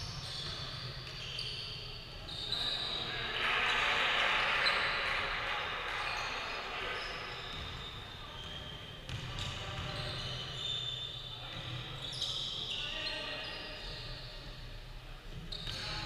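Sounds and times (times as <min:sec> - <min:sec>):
sneaker squeaks: 0:00.0 - 0:05.3, 0:05.9 - 0:14.6, 0:15.3 - 0:16.0.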